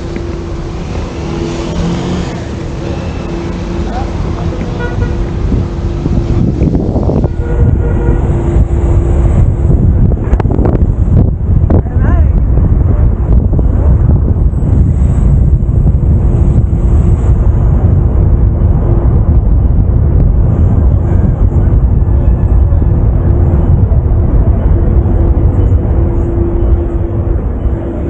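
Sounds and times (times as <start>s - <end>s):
wind and road noise: 0.0s - 28.0s.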